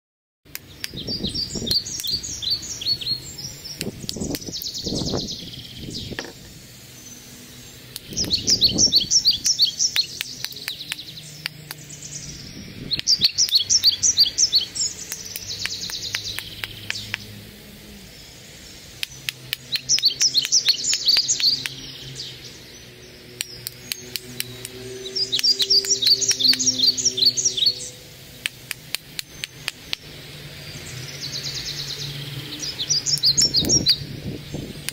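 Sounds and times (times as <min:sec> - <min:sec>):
songbird trilling: 0:00.6 - 0:34.9
stone knapping clicks: 0:09.4 - 0:11.8, 0:23.4 - 0:24.8, 0:28.4 - 0:30.1.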